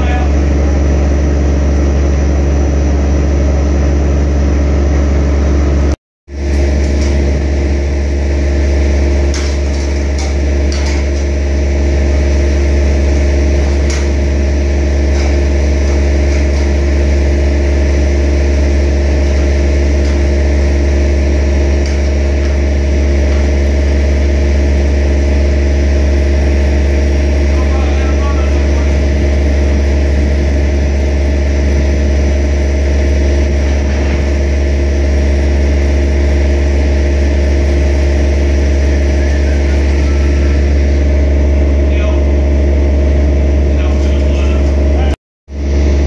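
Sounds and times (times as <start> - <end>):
crane engine running: 0.0 - 46.0.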